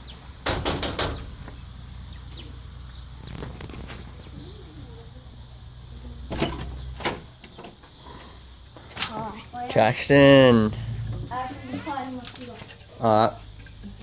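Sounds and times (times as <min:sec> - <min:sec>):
knocking on metal screen door: 0:00.4 - 0:01.4.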